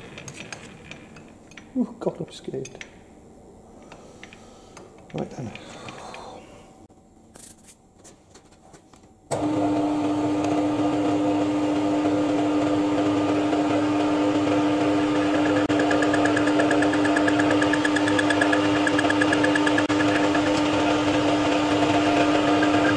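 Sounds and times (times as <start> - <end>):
lathe motor humming: 9.3 - 22.9.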